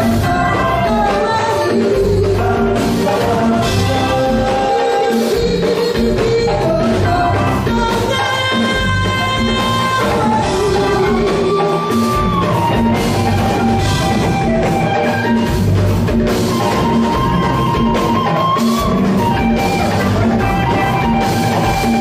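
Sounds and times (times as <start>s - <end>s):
person singing: 0.0s - 14.5s
live band with latin beat: 0.0s - 22.0s.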